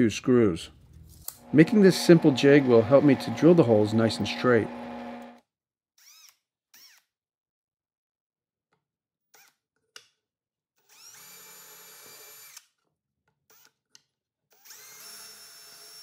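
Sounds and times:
power drill boring into wood: 1.4 - 5.4, 10.9 - 12.6, 14.6 - 16.0.

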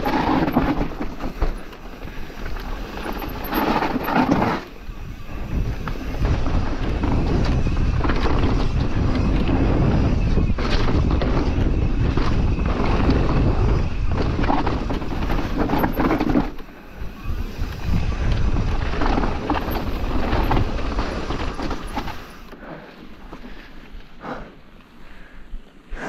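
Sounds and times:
tyres rolling on dirt: 0.0 - 24.2
bike rattling over bumps: 0.0 - 25.1
wind on microphone: 3.0 - 22.3.

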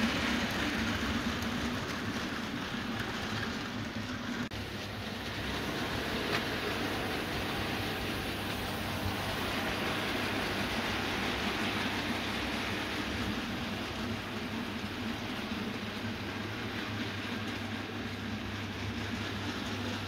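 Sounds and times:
model train running on track: 0.0 - 20.0.

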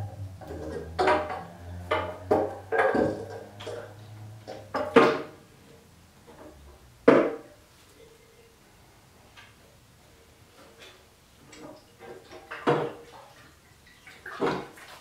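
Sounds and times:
metallic clanks and rattles: 0.0 - 5.4
low steady hum: 0.0 - 10.6.

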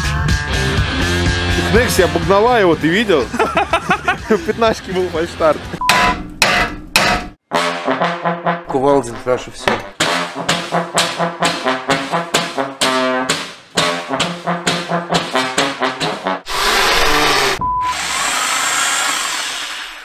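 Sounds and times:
steady beep: 5.8 - 6.2, 17.6 - 18.0
trombone stabbed notes: 7.0 - 17.6.

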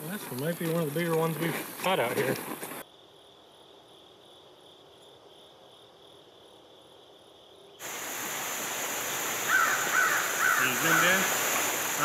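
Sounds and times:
insects chirring: 0.0 - 12.0
shallow stream rushing: 7.8 - 12.0.

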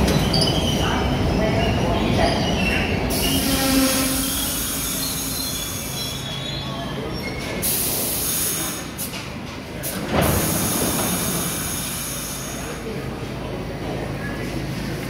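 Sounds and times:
wheel squeal: 0.0 - 7.6
subway train braking rumble: 0.0 - 15.0
short air hisses: 7.6 - 9.1.

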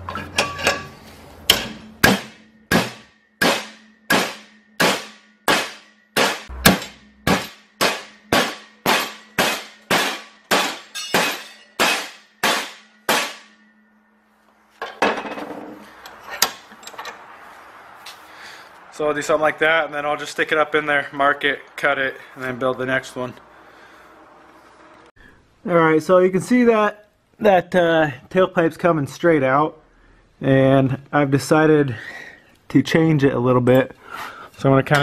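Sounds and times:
metal rod clattering: 0.0 - 1.8, 10.9 - 11.8
hammer striking metal rod: 1.5 - 13.6.

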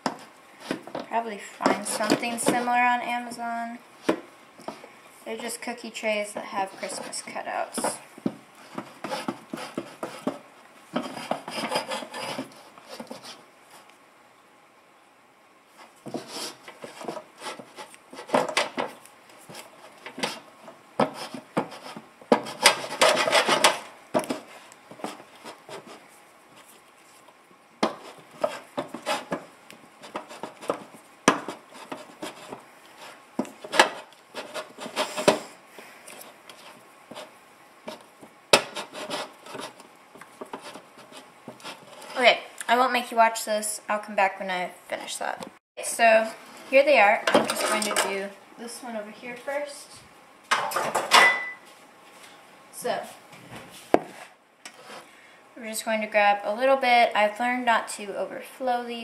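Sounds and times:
hand rubbing butter into metal trays: 0.0 - 13.9, 15.7 - 42.8.

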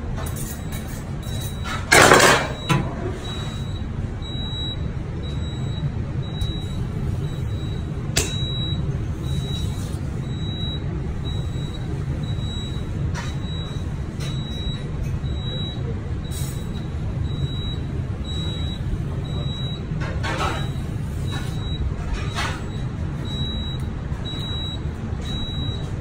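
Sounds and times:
kitchen extractor hood hum: 1.6 - 26.0.

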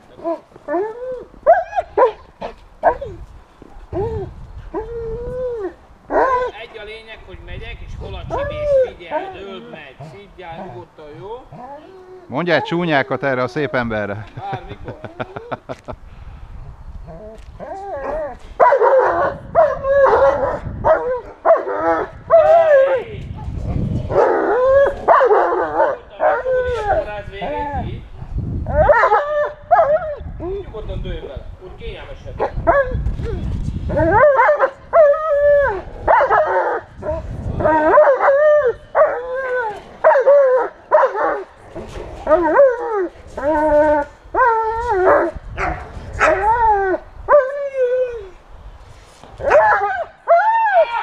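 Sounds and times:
dog barking and yelping: 0.2 - 3.2, 6.1 - 6.6, 17.6 - 22.9, 24.1 - 26.5, 28.7 - 30.2, 33.9 - 41.5, 42.2 - 47.7, 49.4 - 50.4
dog barking: 18.6 - 21.7, 25.1 - 26.0, 36.1 - 36.6, 40.9 - 41.3, 49.5 - 49.9.

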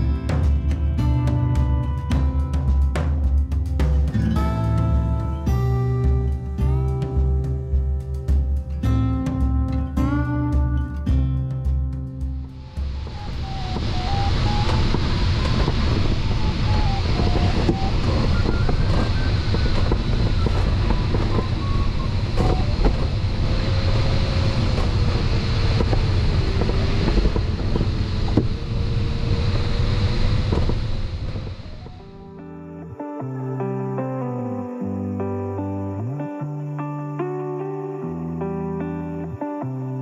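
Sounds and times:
air rushing past canopy: 12.2 - 32.4
electronic tone changing pitch: 12.6 - 25.0, 28.4 - 33.8.

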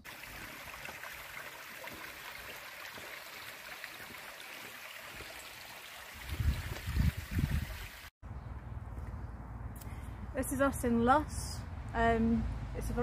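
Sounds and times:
stream trickling over rocks: 0.0 - 8.1.

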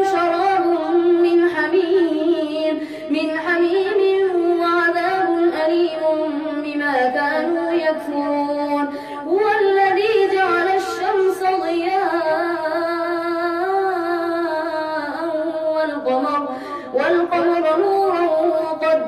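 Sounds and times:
boy reciting melodically: 0.0 - 19.0
boy breathing: 16.5 - 17.0.

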